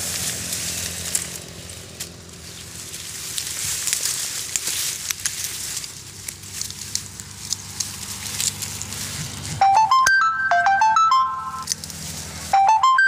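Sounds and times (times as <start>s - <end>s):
reed stems crackling and rustling: 0.0s - 9.7s, 11.6s - 12.6s
phone ringtone beeps: 9.6s - 11.7s, 12.5s - 13.0s.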